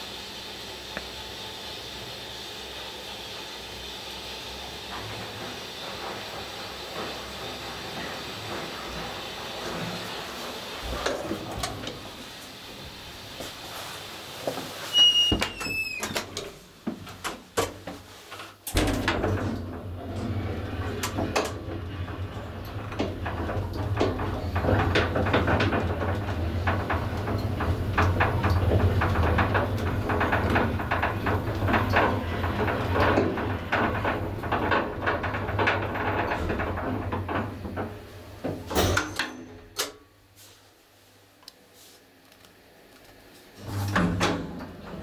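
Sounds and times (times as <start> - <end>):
elevator motor humming: 0.0 - 13.7, 18.7 - 39.7
elevator stopping clunks: 4.7 - 12.4, 18.7 - 39.8, 43.6 - 45.0
elevator rattling and clicking: 4.8 - 12.4, 18.6 - 40.0, 43.6 - 45.0.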